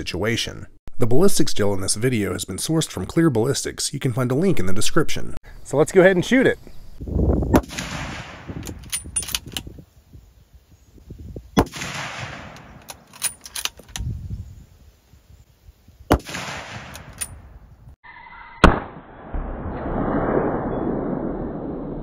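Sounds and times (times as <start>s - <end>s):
rifle shots: 7.5s - 8.8s, 11.6s - 13.2s, 16.1s - 17.5s, 18.6s - 20.7s
rifle bolt metallic clicks: 8.6s - 9.7s, 11.6s - 14.1s, 16.1s - 17.5s.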